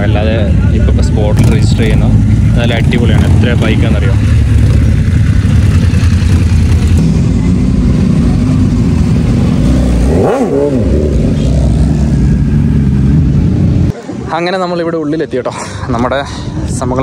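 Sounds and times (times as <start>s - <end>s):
motorcycle engine revving: 0.0s - 14.2s
motorcycle engines rumbling: 0.0s - 17.0s.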